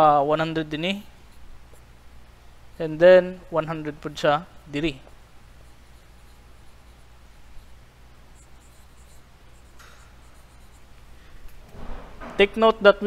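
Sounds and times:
steady low hum: 0:00.0 - 0:13.0
marker pen writing on whiteboard: 0:04.8 - 0:11.5.

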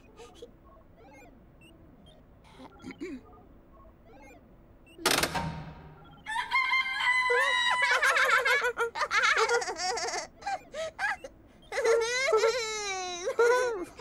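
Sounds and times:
high-pitched squawking sound effects: 0:00.7 - 0:01.4
machine lever clack: 0:05.0 - 0:06.2.

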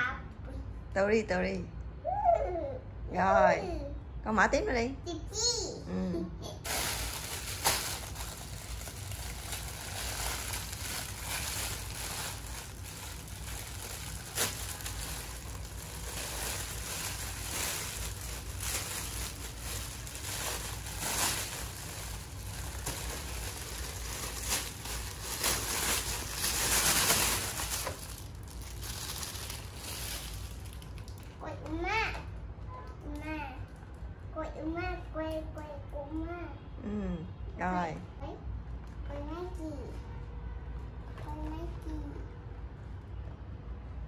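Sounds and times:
plastic bag crinkling: 0:06.6 - 0:31.4.

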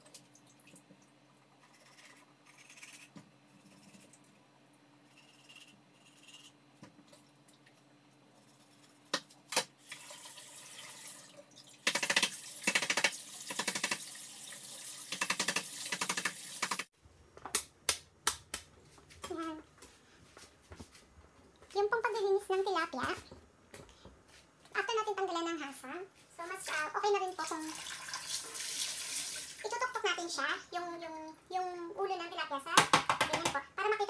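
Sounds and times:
tap water running into sink: 0:09.8 - 0:16.9, 0:27.5 - 0:29.6.

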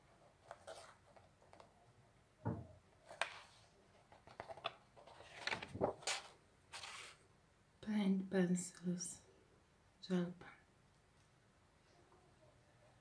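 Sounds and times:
paper pages rustling: 0:00.4 - 0:01.7, 0:03.0 - 0:07.2
dull knock: 0:02.4 - 0:02.7.

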